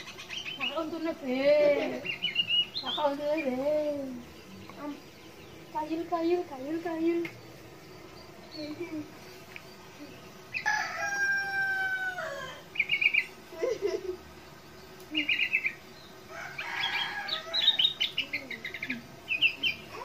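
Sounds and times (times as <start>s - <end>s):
bulbul chirping trills: 0.0s - 10.8s, 12.1s - 13.5s, 14.2s - 20.0s
rooster crowing: 10.6s - 12.8s, 16.2s - 18.1s.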